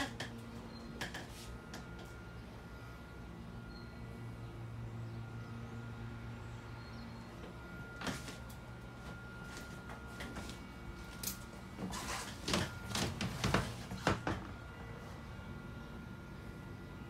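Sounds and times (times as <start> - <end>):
steady low hum: 0.0 - 17.0
faint steady high tone: 2.2 - 4.5.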